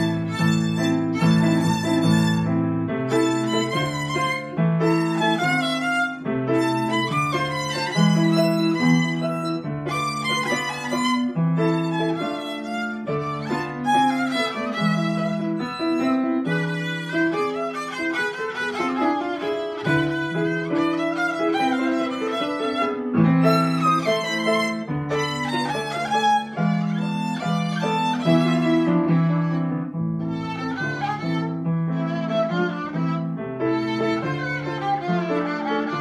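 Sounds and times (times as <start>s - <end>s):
piano chords: 0.0s - 36.0s
violin melody: 0.0s - 36.0s.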